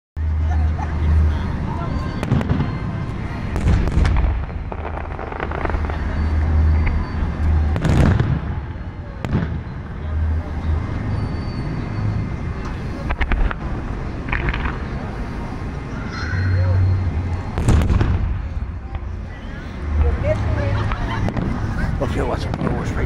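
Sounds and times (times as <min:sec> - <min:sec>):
fireworks booming and cracking: 0:01.1 - 0:11.1, 0:13.0 - 0:15.6, 0:17.1 - 0:19.2, 0:19.8 - 0:23.0.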